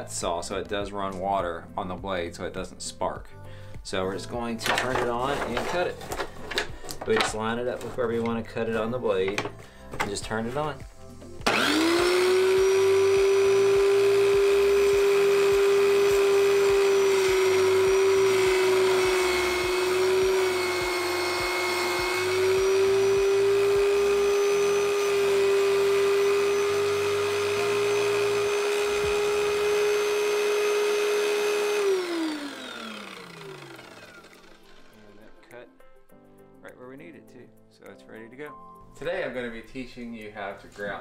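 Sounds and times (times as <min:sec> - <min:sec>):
tile saw whining: 0:11.4 - 0:35.5.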